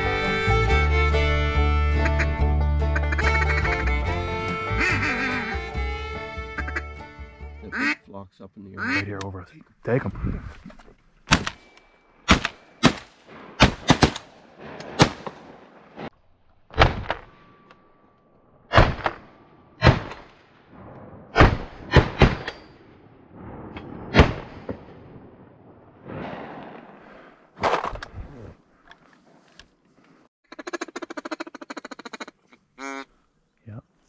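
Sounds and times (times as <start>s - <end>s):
ducks quacking: 1.9s - 8.0s, 8.7s - 9.2s
shotguns firing: 12.3s - 16.1s.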